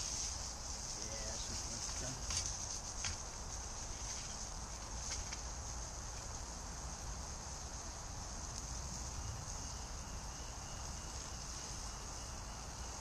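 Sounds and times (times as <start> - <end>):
high-pitched hiss: 0.0 - 13.0.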